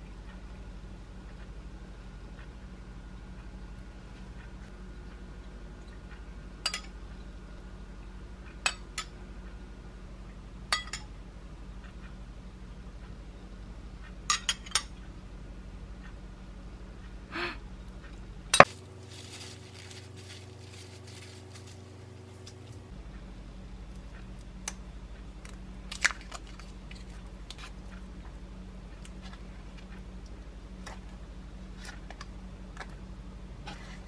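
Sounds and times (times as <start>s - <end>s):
foil wrapper crinkling: 18.6s - 22.9s.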